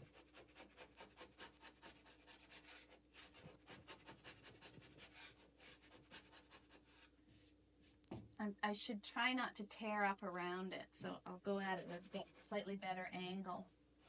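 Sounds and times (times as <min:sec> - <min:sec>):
hand scraper rasping on drywall: 0:00.0 - 0:07.0, 0:11.4 - 0:12.5.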